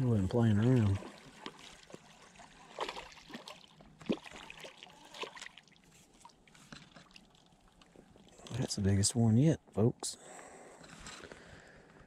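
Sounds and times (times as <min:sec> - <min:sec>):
fish splashing at surface: 0:00.6 - 0:07.8.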